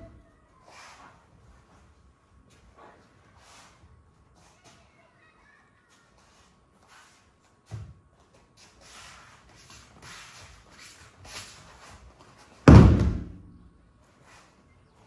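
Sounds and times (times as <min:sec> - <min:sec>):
soft shuffling on mats: 0:00.0 - 0:12.7, 0:13.9 - 0:15.0
body thudding on mat: 0:12.6 - 0:13.4.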